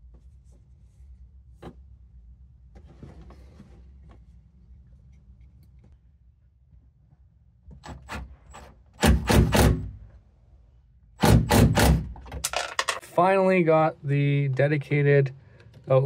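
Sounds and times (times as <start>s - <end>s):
handling noises: 12.2s - 13.0s.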